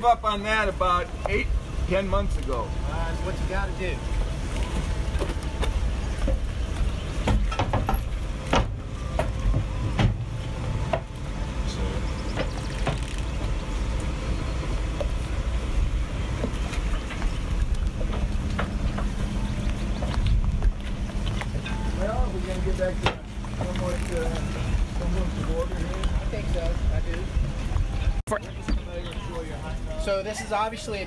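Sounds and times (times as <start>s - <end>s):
boat engine idling: 0.0s - 31.0s
sharp knocks: 7.2s - 10.3s.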